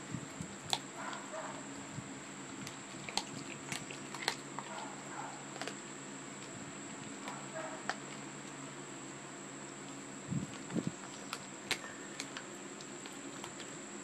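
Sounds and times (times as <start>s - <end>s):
dog chewing bones: 0.1s - 14.0s
bones crunching: 2.5s - 8.7s, 9.7s - 13.7s.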